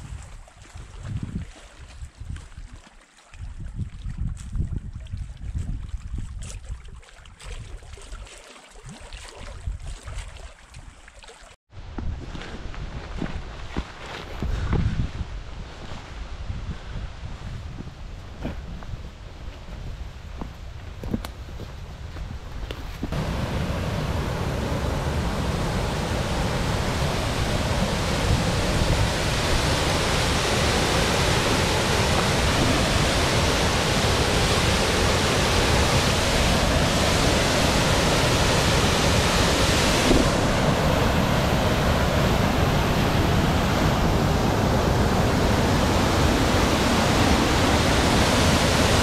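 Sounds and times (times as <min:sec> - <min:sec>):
waterfall roaring: 0:23.2 - 0:49.0.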